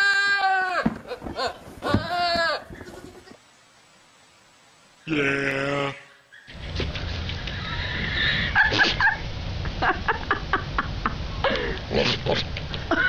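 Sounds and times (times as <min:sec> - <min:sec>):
goat bleating: 0:00.0 - 0:03.3
steady low rumble: 0:06.5 - 0:13.0.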